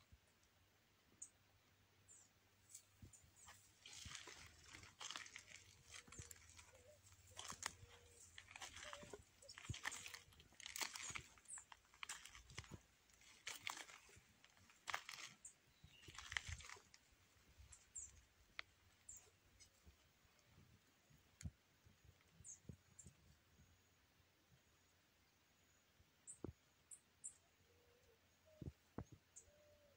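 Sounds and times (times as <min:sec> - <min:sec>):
rustling dry grass: 0:02.6 - 0:20.8.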